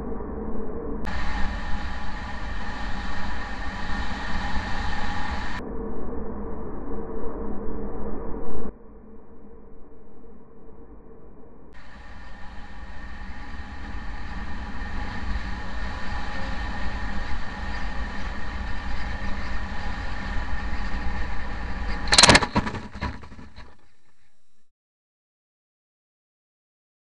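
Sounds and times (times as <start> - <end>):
steady whine: 0.0 - 9.5, 11.6 - 24.5
airflow rushing over camera: 1.1 - 5.6, 11.8 - 24.5
model plane crunching on landing: 15.5 - 24.0.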